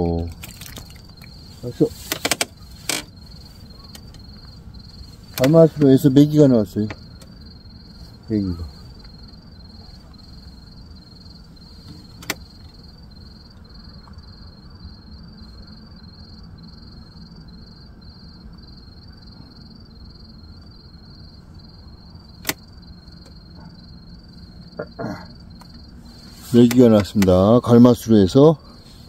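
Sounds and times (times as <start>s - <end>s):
steady low rumble: 0.0s - 27.2s
crickets chirping: 0.0s - 29.0s
sharp click: 22.4s - 22.6s.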